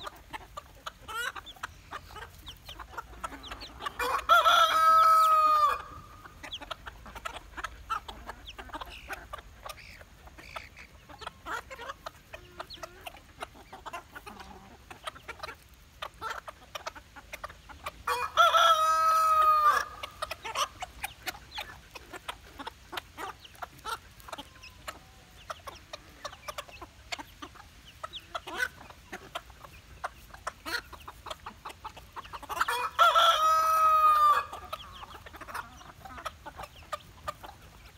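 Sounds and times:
chickens clucking: 0.0 - 37.9
rooster crowing: 4.0 - 6.0, 18.1 - 20.0, 32.7 - 34.5.

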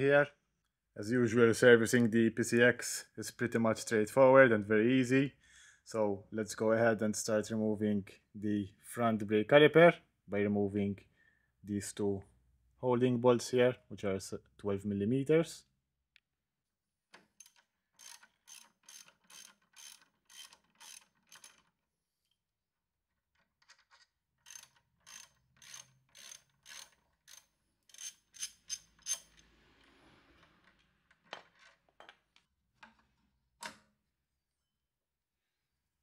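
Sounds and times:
ratchet wrench clicking: 24.4 - 29.5.

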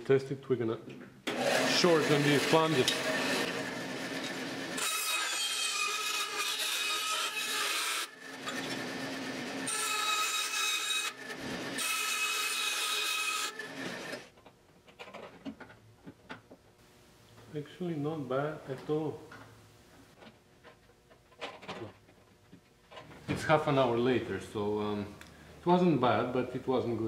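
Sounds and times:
band saw cutting metal: 1.3 - 14.3.

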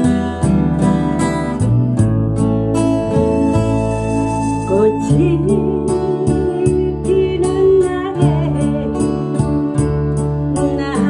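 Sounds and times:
acoustic guitar strumming: 0.0 - 11.0
sustained bass: 0.0 - 11.0
woman singing: 4.6 - 9.9, 10.5 - 11.0.

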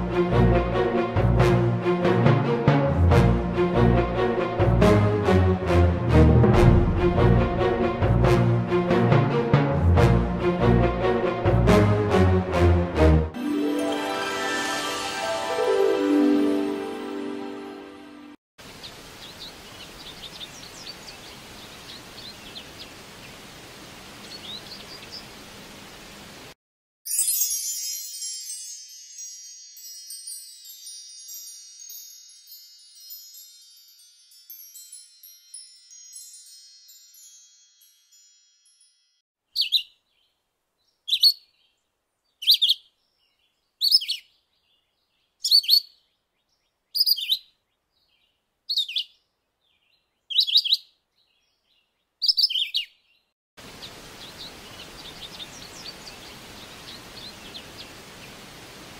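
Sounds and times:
chimes ringing: 13.4 - 18.3, 27.1 - 39.2
soft outdoor ambience: 13.5 - 26.6, 39.4 - 58.9.

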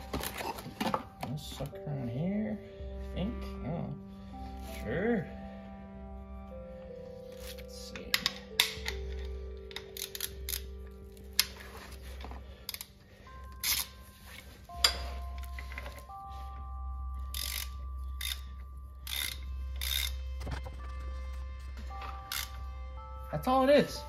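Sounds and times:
soft background music: 0.0 - 24.0
socket ratchet clicking: 8.2 - 10.7, 13.6 - 14.0, 17.3 - 20.3, 22.1 - 22.6.

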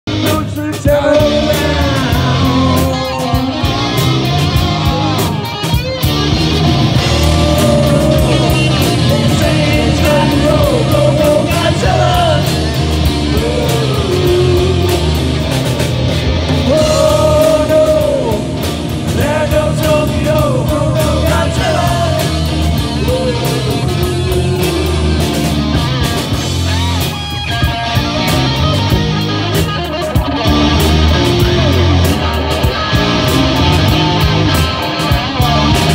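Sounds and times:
live rock band playing: 0.0 - 35.9
person singing: 0.1 - 5.5, 6.9 - 15.6, 16.6 - 25.4.

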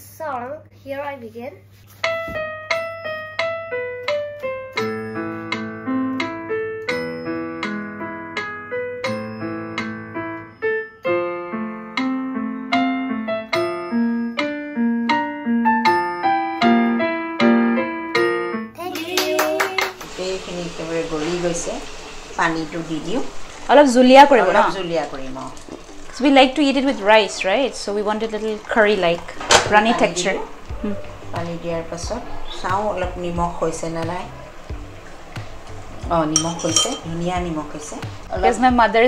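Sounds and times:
electronic keyboard melody: 2.0 - 18.8.

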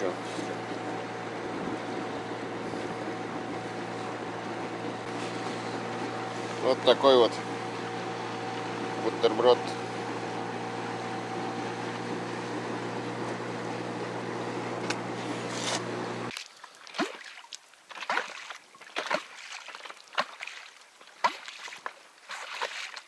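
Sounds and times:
outboard motor running: 0.0 - 23.0
small waves lapping against boat: 16.3 - 23.0.

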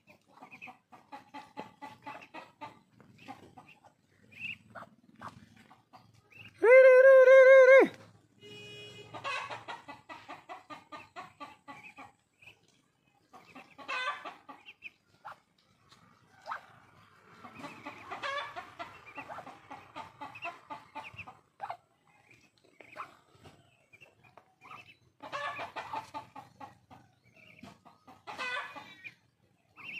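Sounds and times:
ducks chattering: 0.0 - 6.6, 9.1 - 29.9.

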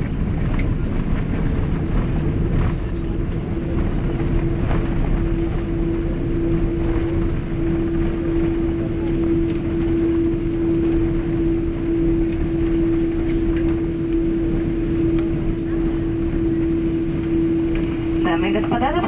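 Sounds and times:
airliner rolling on runway: 0.0 - 19.0
steady hum: 0.0 - 19.0.

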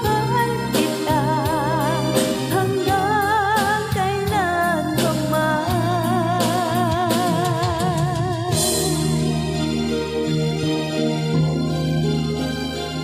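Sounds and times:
woman singing a pop ballad: 0.0 - 9.4
instrumental backing music: 0.0 - 13.0.

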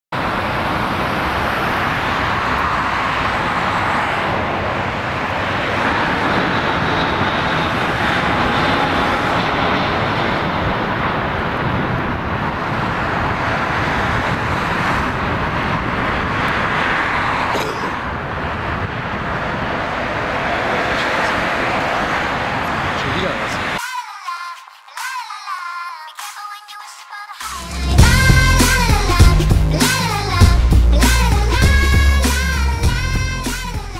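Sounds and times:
jet engines rushing with whine: 0.2 - 23.8, 27.5 - 33.9.

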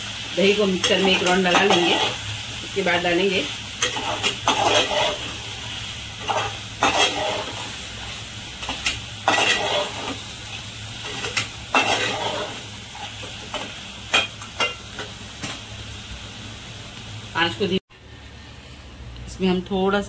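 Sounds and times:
spices sizzling: 0.0 - 17.8
spoon scraping a metal pot: 11.2 - 12.6.

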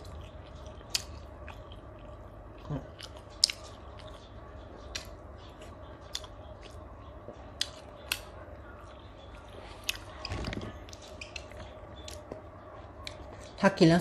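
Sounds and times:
crunchy mouth clicks: 0.0 - 6.8, 9.8 - 12.4
close-up chewing: 0.0 - 13.6.

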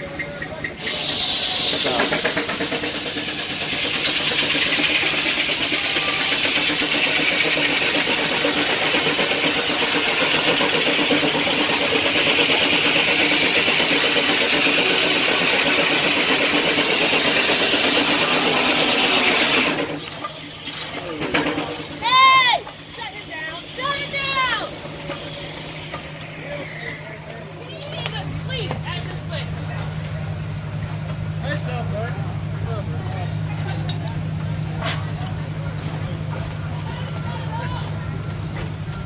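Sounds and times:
sawmill saw cutting log: 0.7 - 29.6.

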